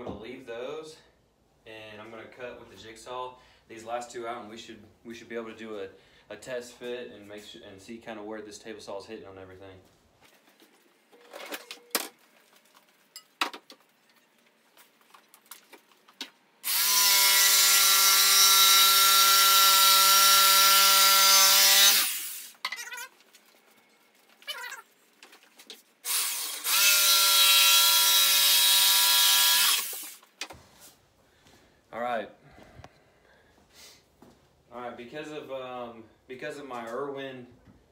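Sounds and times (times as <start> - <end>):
jigsaw cutting wood: 16.6 - 22.5, 26.0 - 30.2.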